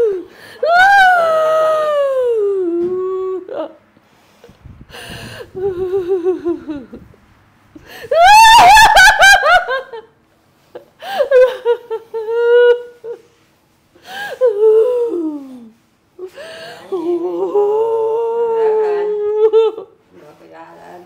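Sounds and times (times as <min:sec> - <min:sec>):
woman laughing and wailing: 0:05.4 - 0:07.2, 0:07.9 - 0:10.1, 0:11.0 - 0:13.2, 0:16.9 - 0:19.9.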